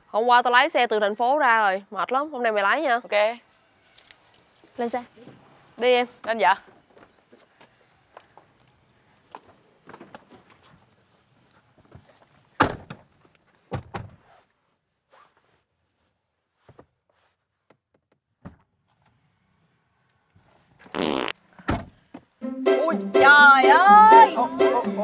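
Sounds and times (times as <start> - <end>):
shuffling: 6.2 - 17.7.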